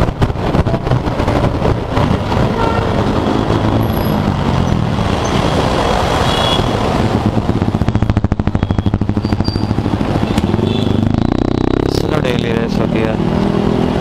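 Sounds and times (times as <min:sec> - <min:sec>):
traffic noise: 0:00.0 - 0:14.0
scooter engine running: 0:06.3 - 0:11.9.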